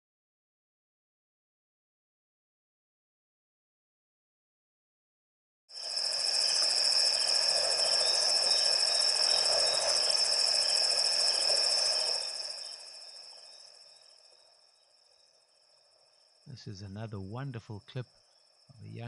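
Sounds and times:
crickets chirring: 5.7 - 19.0.

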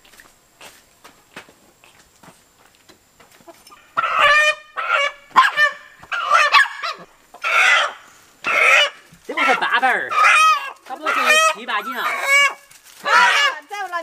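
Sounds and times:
faint footsteps: 0.0 - 4.4, 7.0 - 14.0
chicken squawking alarm calls: 3.5 - 13.9.

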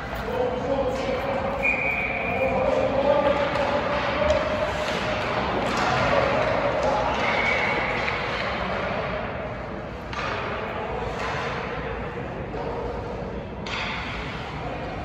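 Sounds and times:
skates on ice: 2.6 - 9.1
knocks of sticks and pucks: 2.6 - 13.0, 13.6 - 15.0.

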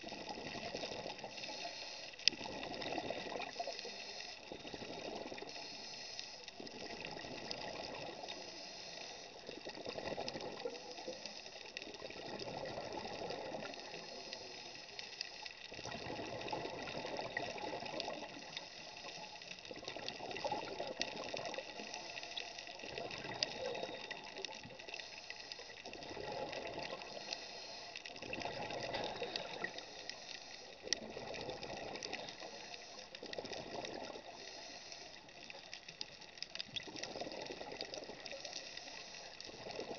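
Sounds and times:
steady regulator hiss: 1.1 - 2.3, 3.3 - 4.8, 5.4 - 7.1, 8.0 - 9.6, 10.6 - 11.8, 13.6 - 15.7, 18.2 - 19.7, 21.5 - 30.9, 31.8 - 33.3, 34.2 - 36.5, 38.2 - 39.7.

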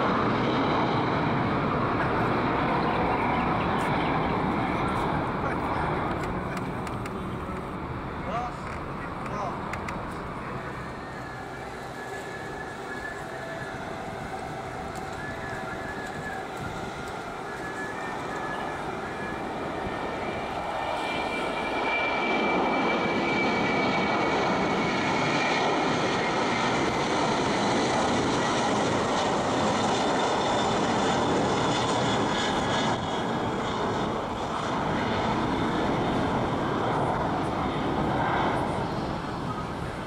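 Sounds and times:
jet engine roar: 0.0 - 40.0
faint high whine: 7.1 - 24.1.

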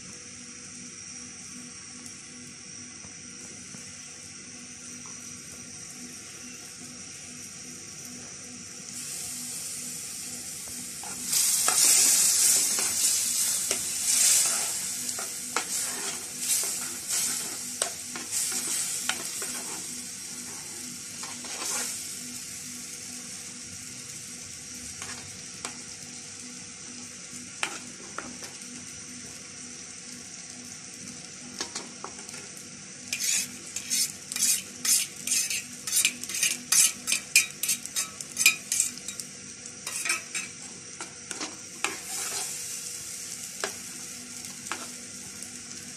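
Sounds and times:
butter sizzling: 0.0 - 45.9
metal spoon scraping pan: 14.4 - 19.9, 21.2 - 22.0, 33.1 - 39.0, 39.9 - 40.5.

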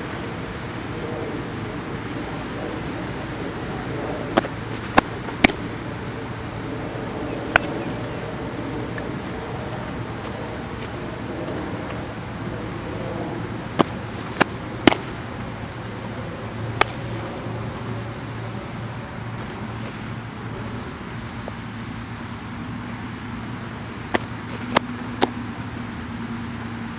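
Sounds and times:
road traffic hum: 0.0 - 26.9
ball smacking into mitt: 4.4 - 5.6, 7.5 - 7.8, 13.8 - 15.1, 16.8 - 17.0, 24.1 - 25.4.

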